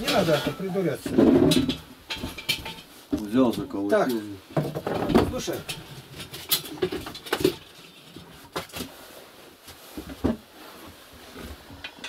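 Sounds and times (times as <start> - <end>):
knocks and scrapes on stove damper: 0.0 - 3.7.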